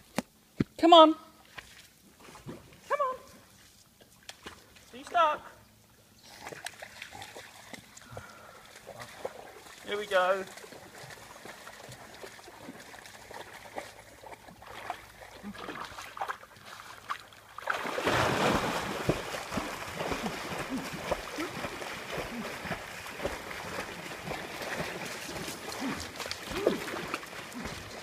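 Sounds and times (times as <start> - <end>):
dog splashing and paddling: 6.2 - 28.0.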